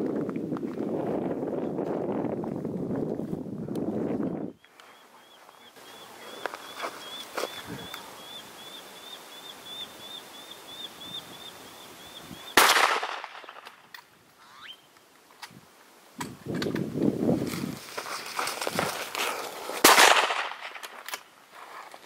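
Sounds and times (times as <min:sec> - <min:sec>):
rifle shot with echo: 0:12.6 - 0:13.7, 0:19.8 - 0:20.8
high chirp: 0:14.4 - 0:14.9.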